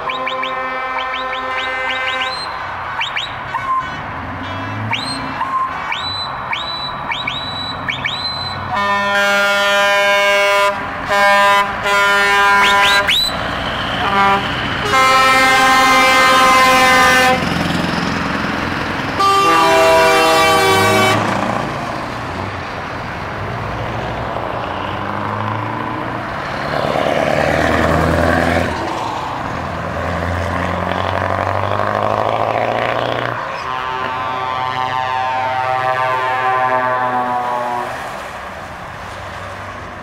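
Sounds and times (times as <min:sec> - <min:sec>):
truck horn blasts: 0:00.0 - 0:17.5, 0:19.2 - 0:21.4, 0:33.0 - 0:38.2
diesel truck engine rumbling: 0:00.0 - 0:40.0.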